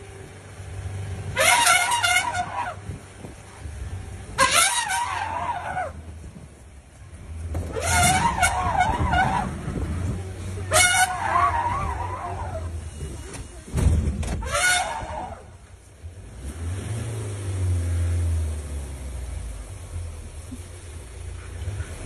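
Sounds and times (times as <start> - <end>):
jeep engine running: 0.0 - 22.0
elephant trumpeting: 1.4 - 2.8, 4.4 - 6.0, 7.7 - 9.7, 10.6 - 12.8, 14.4 - 15.6.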